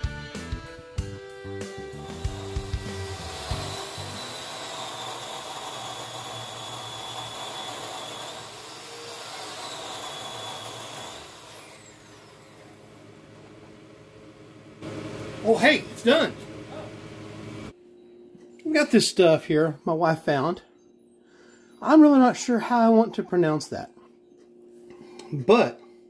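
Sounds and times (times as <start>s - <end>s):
high thin whine: 1.9s - 8.6s
fans whirring hiss: 13.0s - 17.8s.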